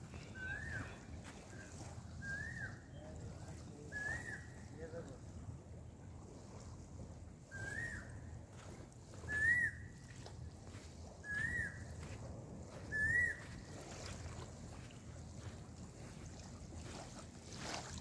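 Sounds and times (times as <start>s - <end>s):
bird whistled calls: 2.2s - 3.0s, 3.9s - 4.6s, 7.5s - 8.2s, 9.2s - 10.0s, 11.2s - 12.0s, 12.8s - 13.7s.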